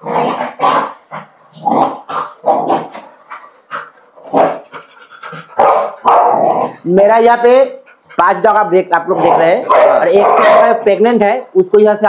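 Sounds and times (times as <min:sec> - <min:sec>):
dog barking: 0:05.6 - 0:06.6, 0:09.7 - 0:10.8.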